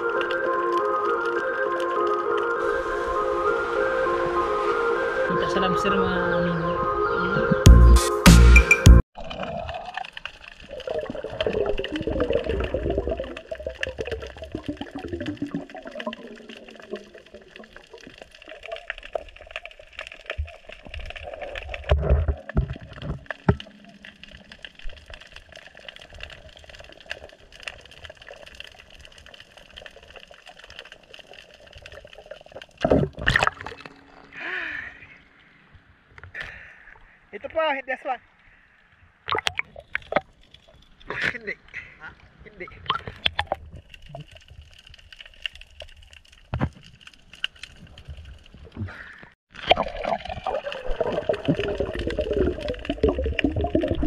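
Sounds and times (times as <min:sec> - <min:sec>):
muffled water gurgling: 0:09.2 - 0:35.3, 0:47.9 - 0:54.0
underwater clicks and knocks: 0:21.6 - 0:23.8.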